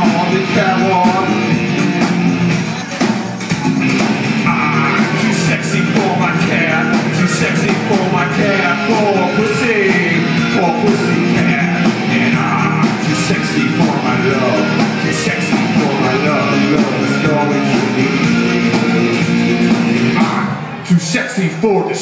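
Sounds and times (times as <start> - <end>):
person singing into a microphone: 0.0 - 1.5, 4.4 - 19.4
electric bass: 0.0 - 2.7, 3.5 - 20.7
drum kit: 0.0 - 20.5.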